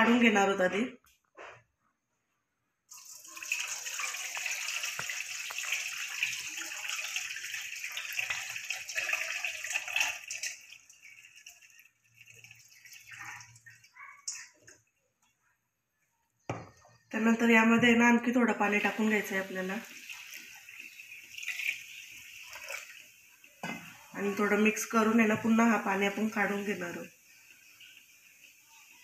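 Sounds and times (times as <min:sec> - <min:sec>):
water pouring from bowl: 0:02.9 - 0:14.9, 0:18.6 - 0:29.0
water trickling and dripping: 0:02.9 - 0:15.4, 0:18.6 - 0:29.0.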